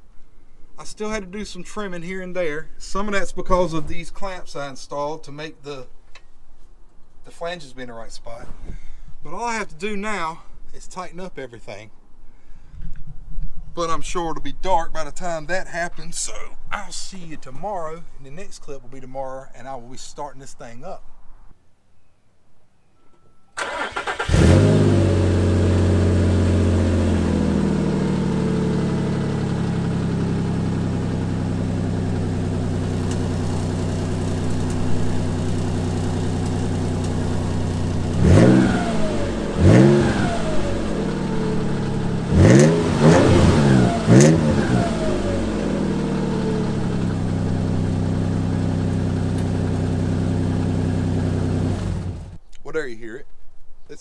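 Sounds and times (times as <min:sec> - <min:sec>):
engine cranking: 0:23.6 - 0:24.8
car engine idling: 0:23.6 - 0:52.4
engine revving: 0:23.6 - 0:52.4.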